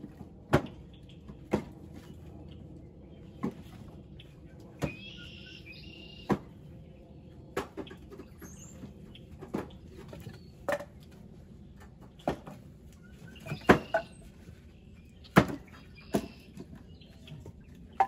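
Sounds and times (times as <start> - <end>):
bird chirping: 4.2 - 6.4, 13.0 - 18.0.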